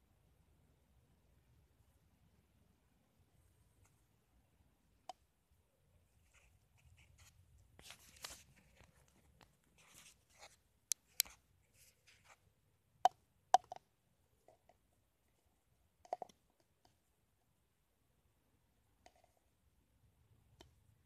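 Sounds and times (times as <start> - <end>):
plastic cup rustling: 6.2 - 12.4.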